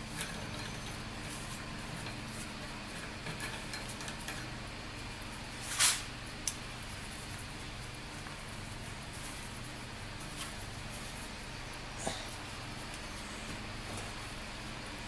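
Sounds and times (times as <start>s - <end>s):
steady low hum: 0.0s - 15.0s
loud scraping hiss: 5.6s - 6.1s.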